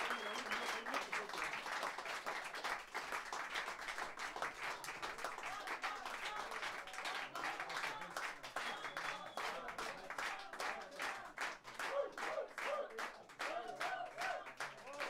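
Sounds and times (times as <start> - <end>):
audience clapping: 0.0 - 15.0.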